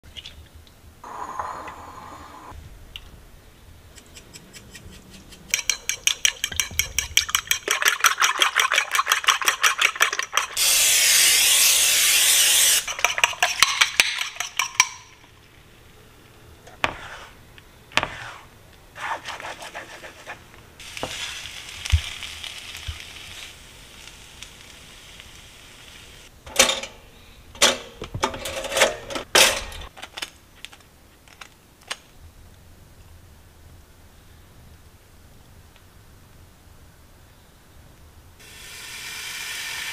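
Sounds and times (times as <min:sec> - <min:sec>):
knife scraping on plate: 0:04.0 - 0:07.4
fork whisking eggs in bowl: 0:04.0 - 0:10.6, 0:12.8 - 0:15.2
spatula scraping pan: 0:16.7 - 0:17.4, 0:18.0 - 0:20.4
eggs sizzling in pan: 0:20.8 - 0:26.3, 0:38.4 - 0:39.9.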